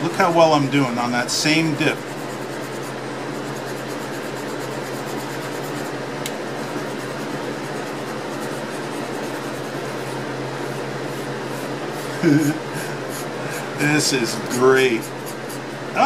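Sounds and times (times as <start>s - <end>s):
steady hum and hiss: 0.0s - 16.0s
pen nib scratching paper: 1.8s - 6.0s, 6.6s - 12.2s, 13.0s - 13.4s, 14.4s - 15.7s.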